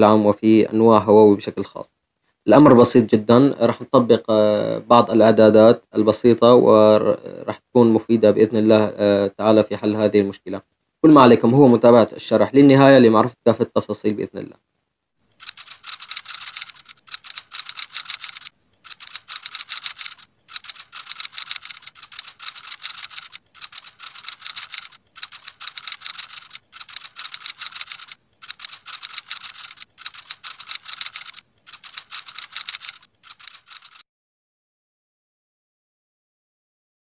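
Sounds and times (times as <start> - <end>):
keyboard typing: 15.4 - 34.0.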